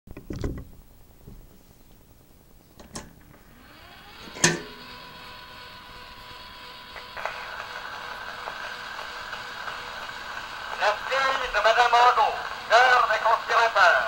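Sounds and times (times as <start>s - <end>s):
faint steady hum: 0.1s - 14.0s
phonograph mandrel whirring: 0.1s - 14.0s
phonograph switch click: 2.8s - 3.3s, 4.2s - 4.8s.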